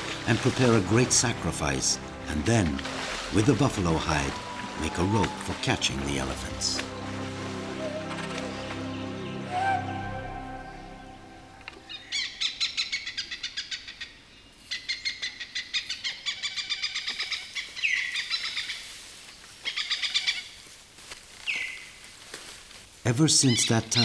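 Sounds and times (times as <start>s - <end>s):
birds chirping: 0.0s - 18.8s
downward sweeping bird calls: 0.0s - 18.8s.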